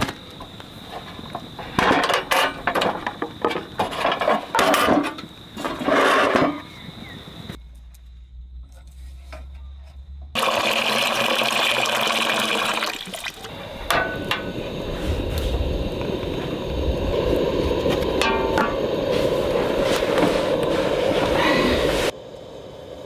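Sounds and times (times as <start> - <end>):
water pouring into metal pot: 10.4 - 13.5.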